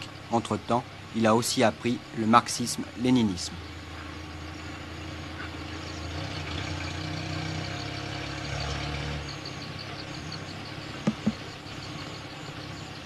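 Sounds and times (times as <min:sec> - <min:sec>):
low engine-like rumble: 0:00.0 - 0:06.5
sharp knocks: 0:11.0 - 0:11.4.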